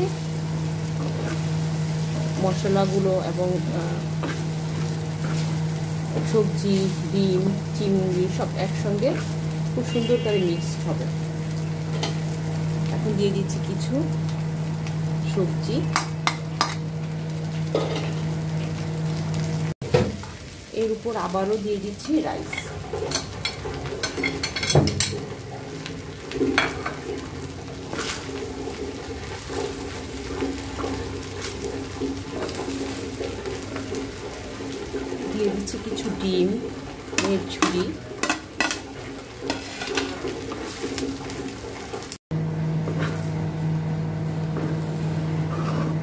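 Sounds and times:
low sizzle: 0.0 - 46.0
spatula scraping in wok: 0.9 - 11.0, 37.1 - 41.0, 42.8 - 43.4, 44.6 - 46.0
metal spatula scraping frying pan: 1.0 - 1.5, 37.2 - 41.0, 45.5 - 46.0.

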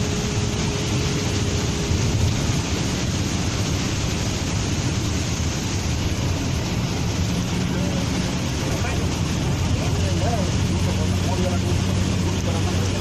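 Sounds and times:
heavy rain on vehicle: 0.0 - 13.0
road noise: 0.0 - 13.0.

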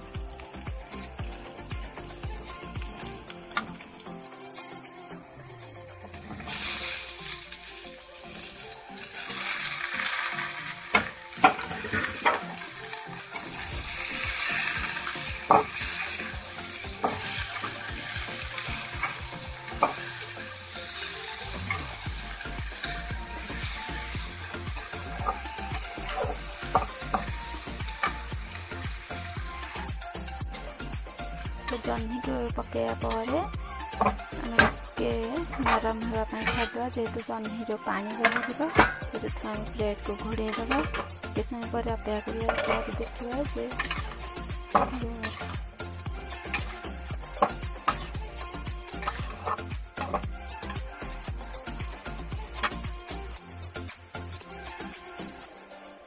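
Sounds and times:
vegetables sizzling in hot oil: 0.0 - 4.3, 4.9 - 53.1
metal spatula scraping pan: 6.0 - 28.9, 30.5 - 32.1, 33.0 - 39.2, 40.5 - 41.4, 42.2 - 50.8
spatula clinking on metal: 6.1 - 29.8, 33.0 - 39.2, 40.4 - 41.5, 42.2 - 45.6, 46.2 - 48.2, 49.0 - 50.8.

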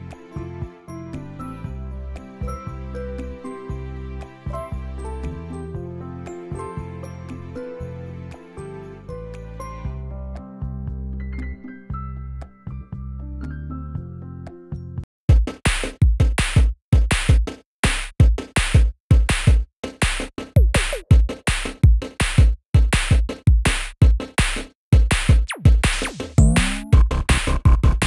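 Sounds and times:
electronic music with heavy bass: 25.2 - 28.0.

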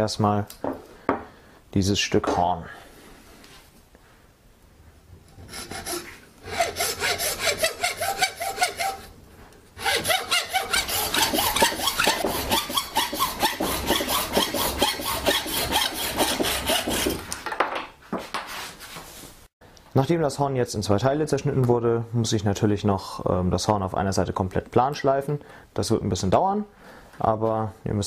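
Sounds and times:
hacksaw cutting horn: 5.4 - 9.1, 9.8 - 17.2.

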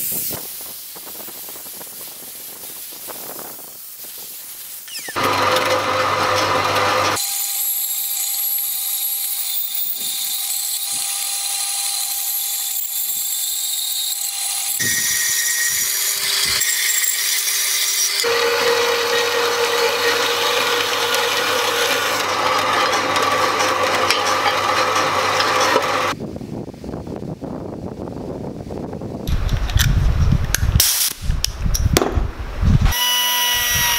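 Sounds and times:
bandsaw cutting steel: 4.9 - 26.2, 32.9 - 33.9.

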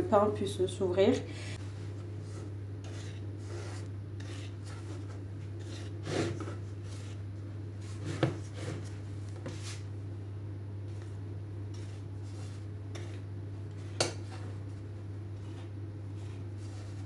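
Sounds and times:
blade scoring bread dough: 2.2 - 9.8, 11.7 - 14.5.

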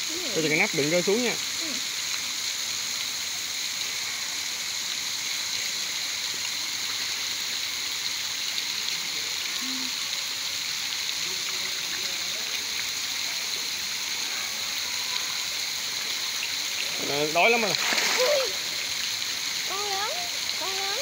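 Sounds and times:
small splashes: 11.1 - 21.0
fish splashing and churning water: 12.6 - 21.0.

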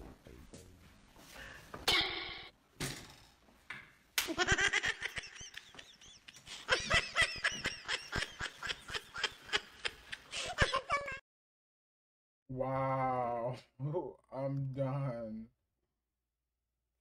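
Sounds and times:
man laughing hard: 4.3 - 11.2.

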